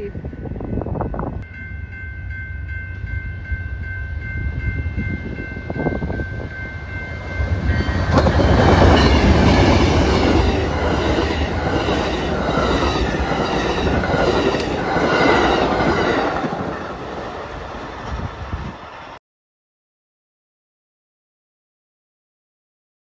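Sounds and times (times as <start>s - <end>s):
train cars rumbling and clattering: 2.7s - 19.2s
wheels striking rail joints: 7.0s - 19.2s.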